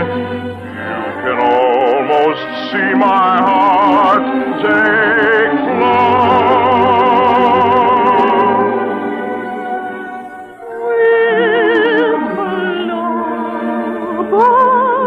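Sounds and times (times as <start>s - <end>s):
orchestral music: 0.0s - 14.7s
operatic singing with vibrato: 0.0s - 15.0s.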